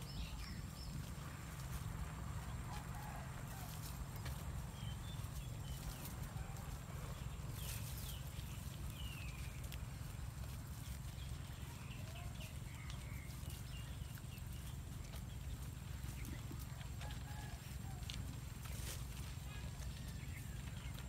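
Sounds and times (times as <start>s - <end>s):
goats chewing stems: 0.0s - 21.0s
leaves rustling: 0.0s - 21.0s.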